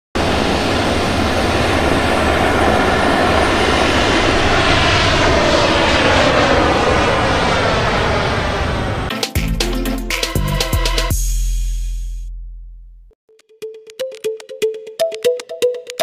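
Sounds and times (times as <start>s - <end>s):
jet engines at high thrust: 0.2s - 9.1s.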